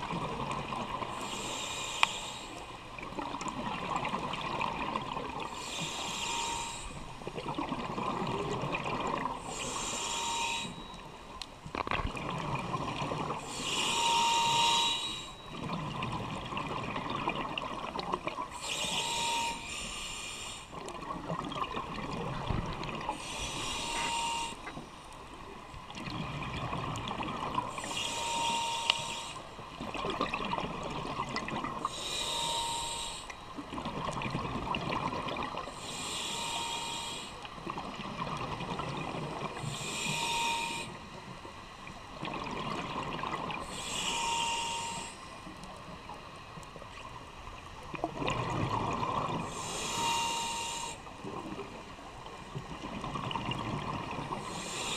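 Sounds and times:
regulator hissing inhale: 0:01.2 - 0:02.7, 0:05.6 - 0:07.1, 0:09.4 - 0:10.8, 0:13.5 - 0:15.4, 0:18.6 - 0:20.8, 0:23.1 - 0:24.7, 0:27.7 - 0:29.5, 0:31.8 - 0:33.4, 0:35.7 - 0:37.5, 0:39.6 - 0:41.0, 0:43.6 - 0:45.3, 0:49.4 - 0:51.1, 0:54.4 - 0:54.9.

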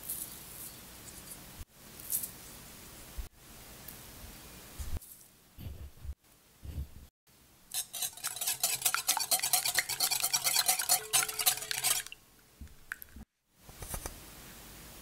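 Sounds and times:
whisk clicking against glass bowl: 0:07.8 - 0:12.2.

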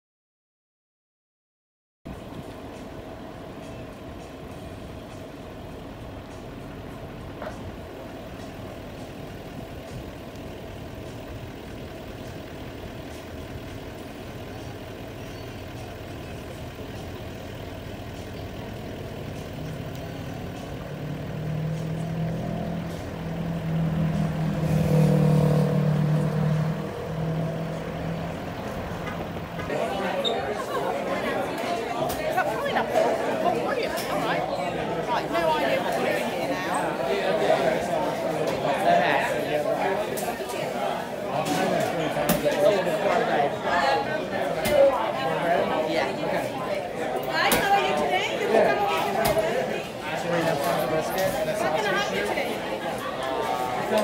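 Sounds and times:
faint traffic hum: 0:02.1 - 0:54.0
vehicle engine passing: 0:07.3 - 0:30.0.

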